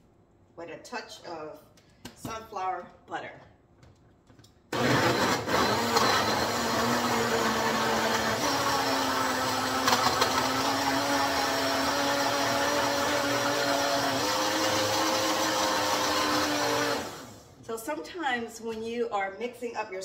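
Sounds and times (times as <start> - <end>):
blender running: 4.7 - 17.6.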